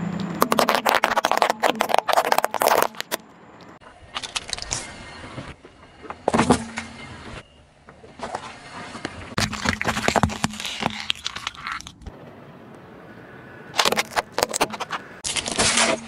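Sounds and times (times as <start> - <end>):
plastic crunching under tyre: 0.2 - 3.3, 4.1 - 4.9, 9.3 - 12.2, 13.7 - 16.0.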